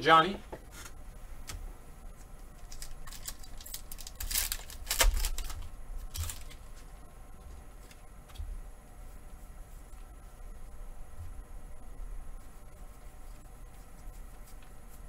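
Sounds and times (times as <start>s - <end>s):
foil wrapper tearing and crinkling: 2.6s - 6.7s
cards rustling: 2.6s - 6.9s.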